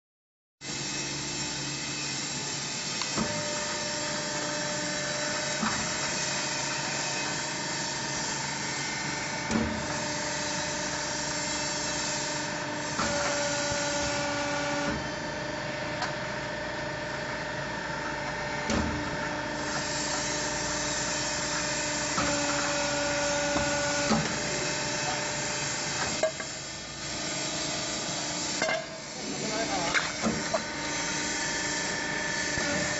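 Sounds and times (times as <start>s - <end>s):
pump motor humming: 18.6s - 28.5s, 29.2s - 32.9s.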